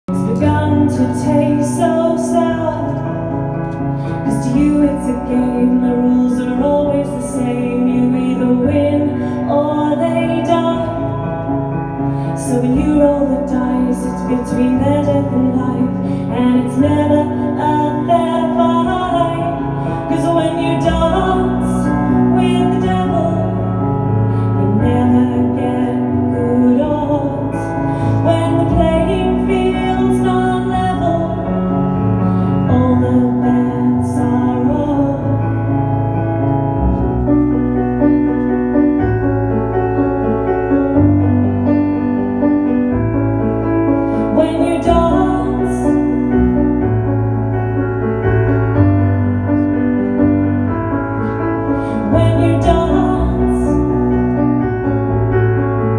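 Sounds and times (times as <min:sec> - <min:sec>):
woman singing: 0:00.0 - 0:03.4, 0:04.2 - 0:35.9, 0:44.2 - 0:46.7, 0:51.7 - 0:54.4
keyboard chords: 0:00.0 - 0:55.9.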